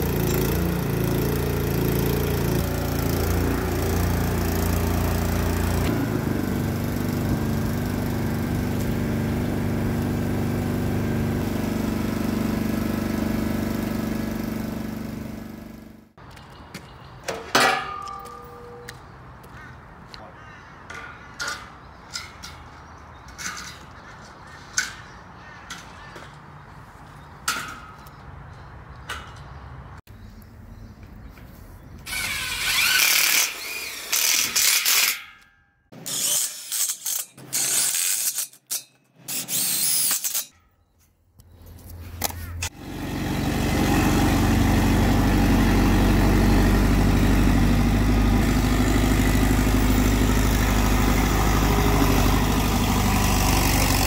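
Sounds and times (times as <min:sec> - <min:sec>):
crane engine running: 0:00.0 - 0:16.1, 0:41.7 - 0:54.0
steel frame sections clanking: 0:17.3 - 0:18.9
cordless drill driving screws: 0:32.1 - 0:35.1.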